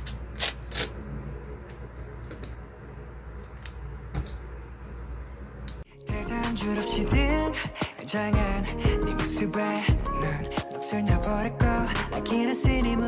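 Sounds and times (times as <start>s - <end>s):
steady low hum: 0.0s - 7.8s
music with singing: 5.9s - 13.0s.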